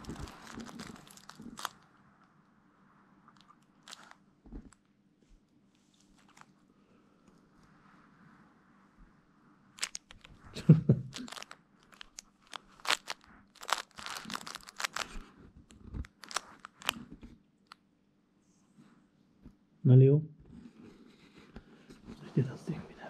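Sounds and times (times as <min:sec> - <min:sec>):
crinkle toy rustling: 0:00.0 - 0:02.0, 0:03.3 - 0:04.9, 0:05.8 - 0:06.7, 0:09.7 - 0:17.2.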